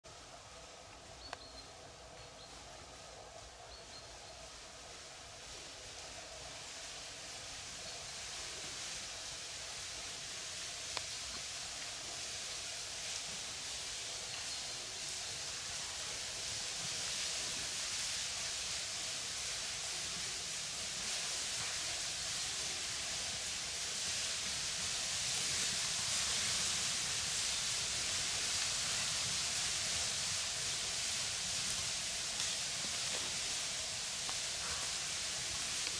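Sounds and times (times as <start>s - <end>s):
steady hiss: 0.0s - 35.9s.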